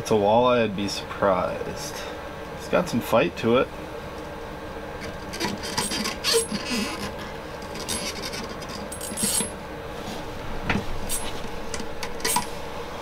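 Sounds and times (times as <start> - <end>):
fishing reel cranking whine: 5.6 - 7.1.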